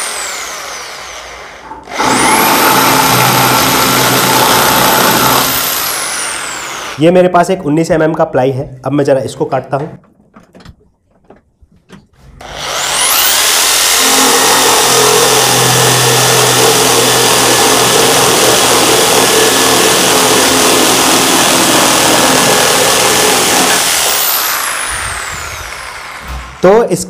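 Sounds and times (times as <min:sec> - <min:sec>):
saw blade cutting plywood: 0:00.0 - 0:07.0, 0:12.3 - 0:26.8.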